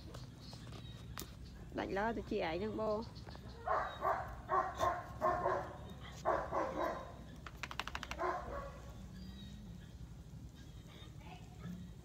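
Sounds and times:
young dog barking: 0:03.6 - 0:07.2, 0:08.1 - 0:08.9
rattle of sharp clicks: 0:07.4 - 0:08.4.

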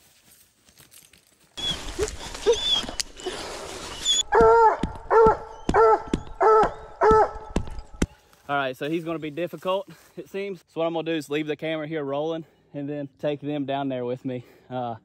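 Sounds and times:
hounds barking: 0:04.3 - 0:07.6.

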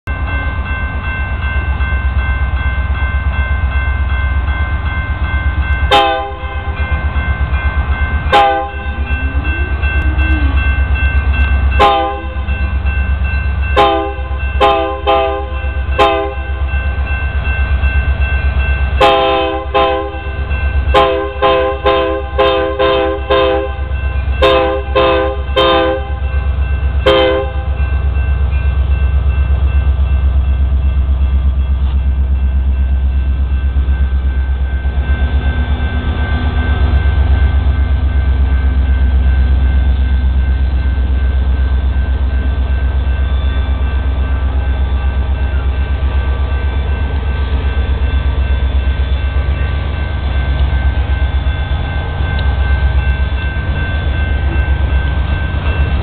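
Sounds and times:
diesel locomotive rumble: 0:00.0 - 0:56.0
train air horn blasts: 0:05.9 - 0:06.4, 0:08.3 - 0:08.9, 0:11.8 - 0:12.4, 0:13.8 - 0:16.4, 0:19.0 - 0:20.2, 0:21.0 - 0:26.2, 0:27.0 - 0:27.7.

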